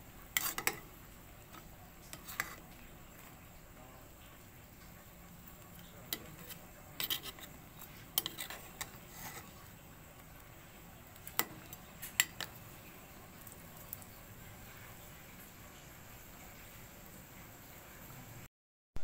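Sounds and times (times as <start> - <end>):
broth boiling: 0.0 - 18.5
metal utensil clinking on a pot: 0.4 - 0.9.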